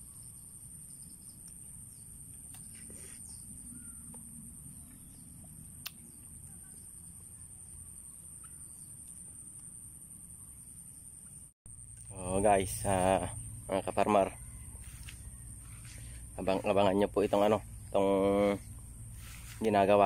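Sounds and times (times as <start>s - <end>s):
faint bird chirps: 0.0s - 9.7s, 10.3s - 19.6s
high-pitched insect drone: 11.7s - 20.0s.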